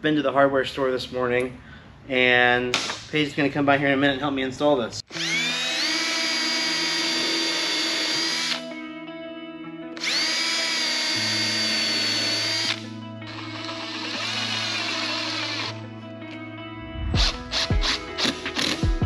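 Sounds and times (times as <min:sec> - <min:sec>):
cordless drill whining: 0:05.1 - 0:08.6, 0:10.0 - 0:15.8, 0:17.3 - 0:18.9.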